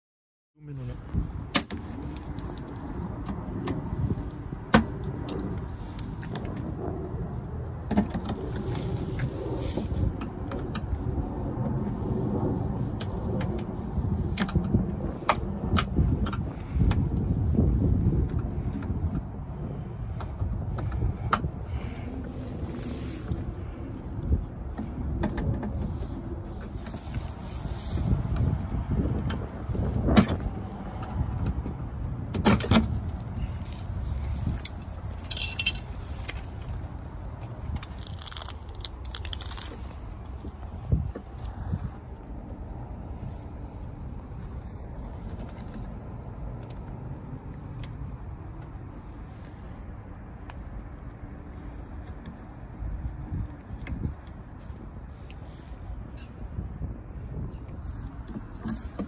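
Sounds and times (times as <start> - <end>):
low rumble: 1.0 - 32.3.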